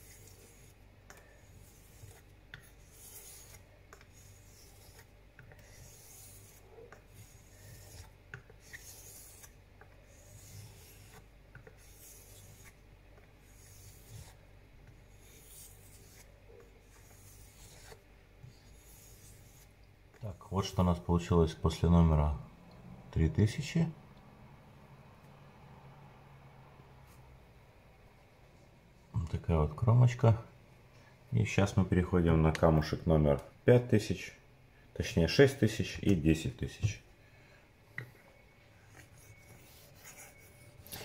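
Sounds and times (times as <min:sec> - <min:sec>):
razor scraping on sharpening stone: 0:00.0 - 0:12.8, 0:13.4 - 0:14.4, 0:15.0 - 0:19.7, 0:38.9 - 0:41.0.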